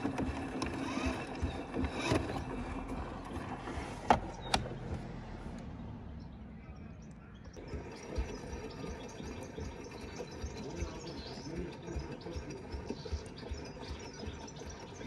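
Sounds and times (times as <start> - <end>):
water sloshing in washing machine drum: 7.6 - 15.0.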